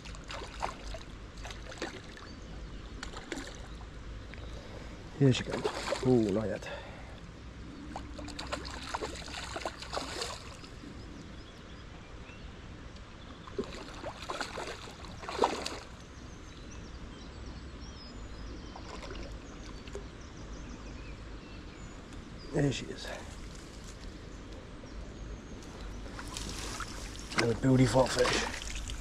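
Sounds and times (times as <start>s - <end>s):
fish splashing in water: 0.0s - 2.3s, 5.4s - 6.2s, 7.9s - 10.7s, 13.5s - 16.0s, 18.8s - 20.0s.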